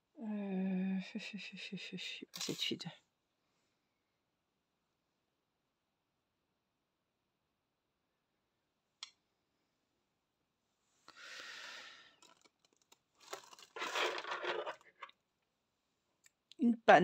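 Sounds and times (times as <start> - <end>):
hands rustling a cloth doll: 12.3 - 15.1.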